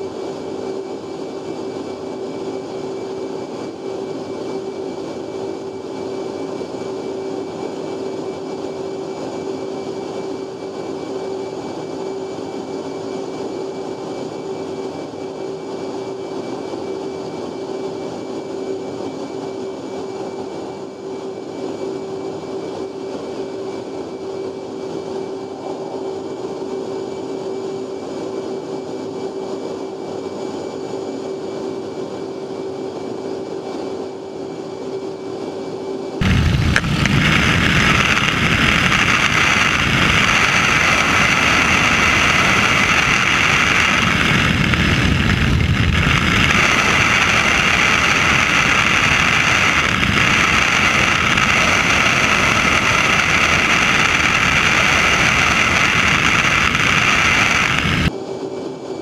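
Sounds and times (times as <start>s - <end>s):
wind and engine noise: 0.0s - 59.0s
cockpit cabin hum: 36.2s - 58.1s.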